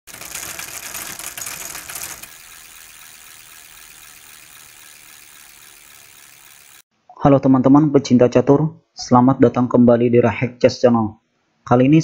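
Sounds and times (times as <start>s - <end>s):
rapid mechanical clatter: 0.0s - 6.8s.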